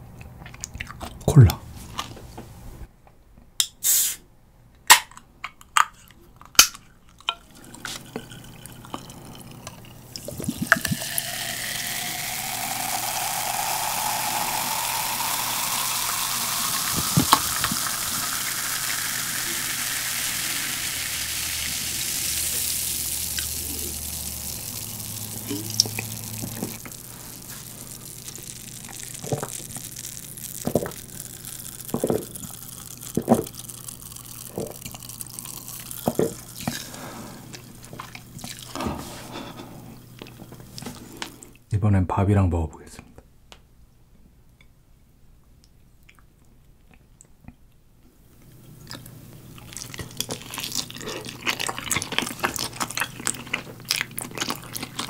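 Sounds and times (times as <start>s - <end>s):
cola pouring and fizzing: 7.1s - 38.8s, 48.9s - 55.0s.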